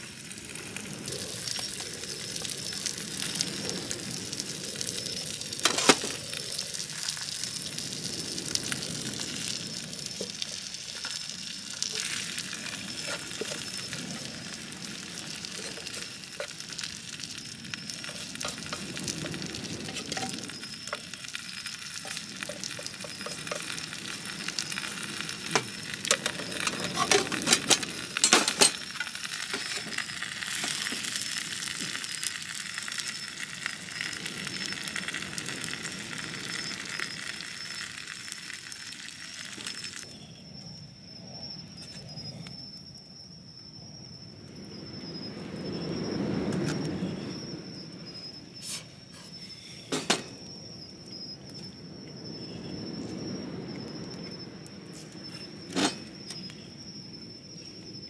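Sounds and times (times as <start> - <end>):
food sizzling in a frying pan: 0.0 - 40.2.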